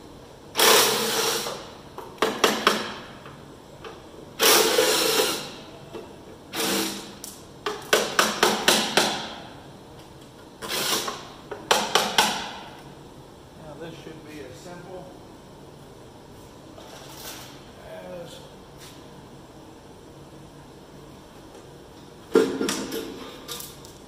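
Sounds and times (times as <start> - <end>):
impact wrench running: 0.5 - 3.0, 4.4 - 5.6, 6.5 - 9.4, 10.6 - 12.6.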